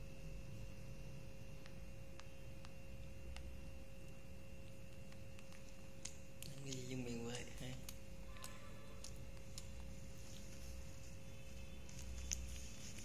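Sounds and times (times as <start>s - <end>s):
steady two-tone hum: 0.0s - 13.0s.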